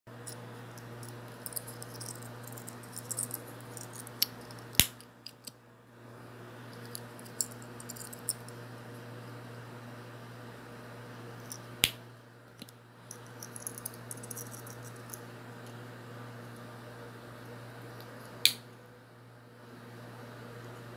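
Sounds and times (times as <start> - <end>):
steady low hum: 0.1 - 20.9
metal lockets clinking: 0.2 - 5.5, 6.8 - 8.5, 13.2 - 15.2.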